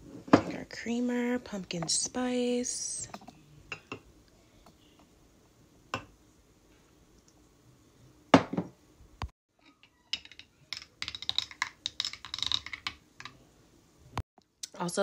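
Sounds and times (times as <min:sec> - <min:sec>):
ceramic pitcher knocking on counter: 0:08.4 - 0:08.7.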